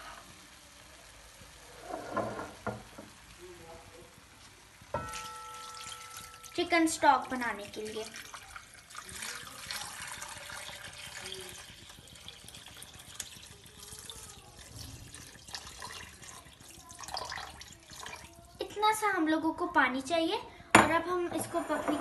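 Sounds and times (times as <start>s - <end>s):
water pouring into a wok: 4.8s - 18.5s.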